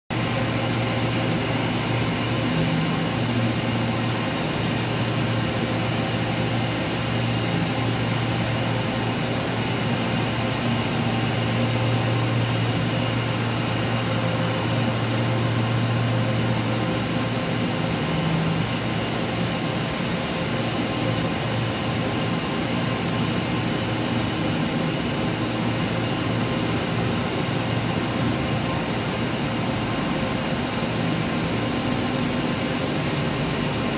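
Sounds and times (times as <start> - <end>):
textile machines humming: 0.1 - 33.9.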